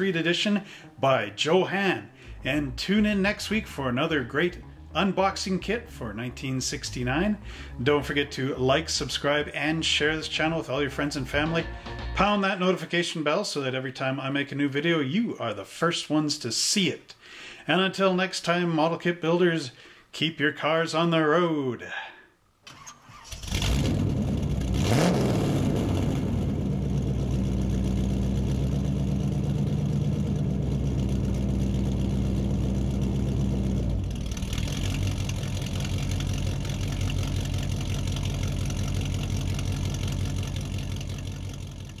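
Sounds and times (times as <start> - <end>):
car engine starting and running: 2.2 - 12.2, 22.7 - 42.0.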